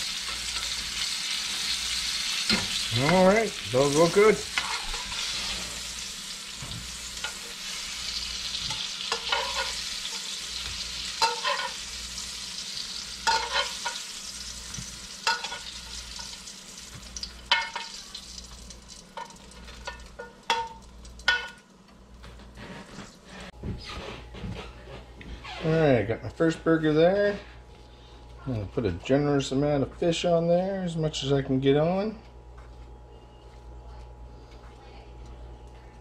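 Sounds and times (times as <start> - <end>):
fish sizzling in a frying pan: 0.0 - 21.4
metal tongs clinking on pan: 8.7 - 9.8, 11.2 - 11.8, 13.2 - 14.0, 15.2 - 16.4.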